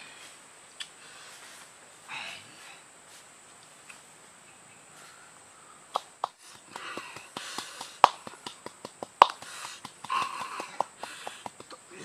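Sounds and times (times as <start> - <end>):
wooden pestle knocking in a bowl: 6.5 - 11.7.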